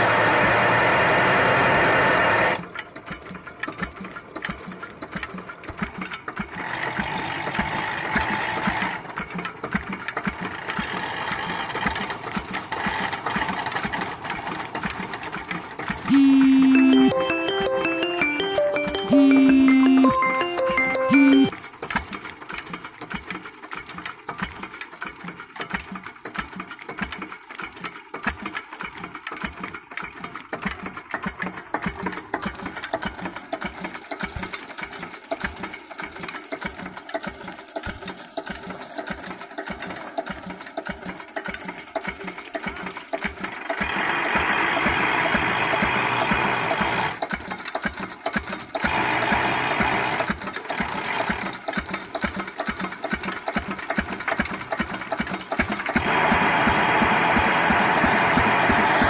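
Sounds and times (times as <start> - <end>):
stationary diesel engine beat: 16.1 - 21.5.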